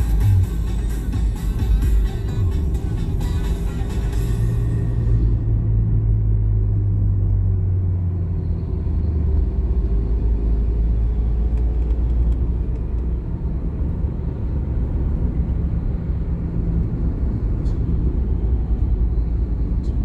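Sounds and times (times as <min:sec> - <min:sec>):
car engine drone: 0:00.0 - 0:20.0
road and tyre rumble: 0:00.0 - 0:20.0.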